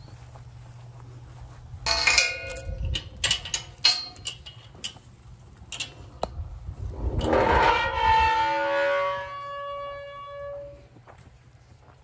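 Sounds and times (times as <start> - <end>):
metal gate clanking and rattling: 1.9 - 6.1, 7.1 - 10.8.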